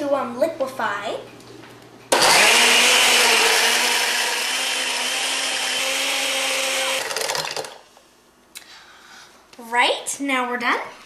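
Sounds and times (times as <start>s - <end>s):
blender motor running: 2.1s - 7.8s.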